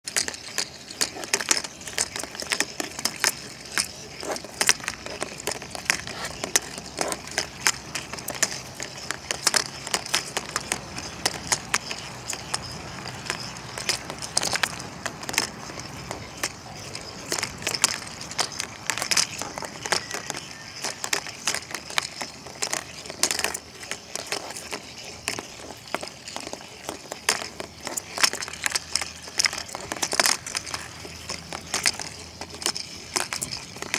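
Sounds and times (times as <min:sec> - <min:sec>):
plastic balls clattering and knocking: 0:00.0 - 0:33.9.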